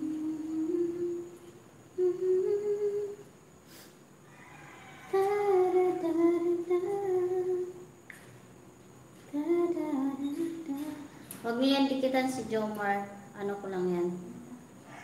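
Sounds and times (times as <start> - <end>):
person humming a slow tune: 0.0 - 3.9, 5.0 - 7.9, 9.3 - 11.2.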